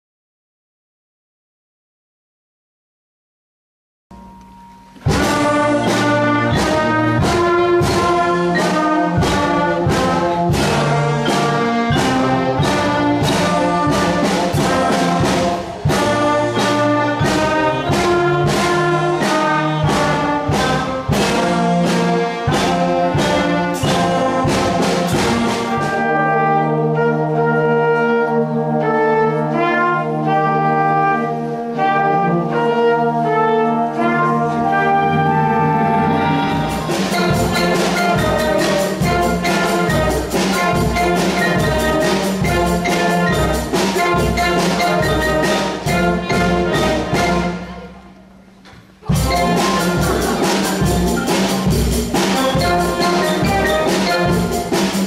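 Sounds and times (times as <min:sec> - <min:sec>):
sharp steady beat: 0:04.1 - 0:25.9, 0:36.7 - 0:47.9, 0:49.1 - 0:55.0
wind band playing: 0:05.0 - 0:55.0.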